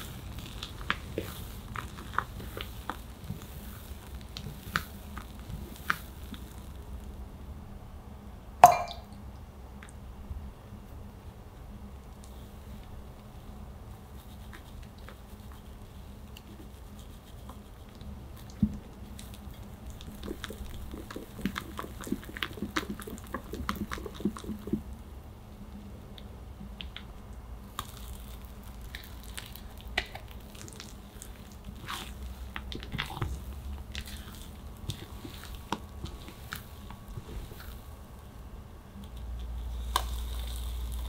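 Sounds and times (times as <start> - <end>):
batter squishing in bowl: 0.0 - 6.7, 14.0 - 25.0, 26.2 - 41.0.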